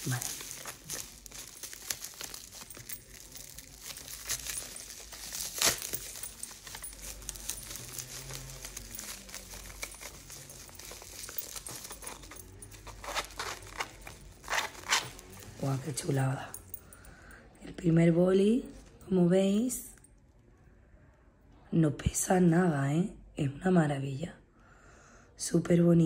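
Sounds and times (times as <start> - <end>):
bubble wrap crinkling: 0.0 - 16.9.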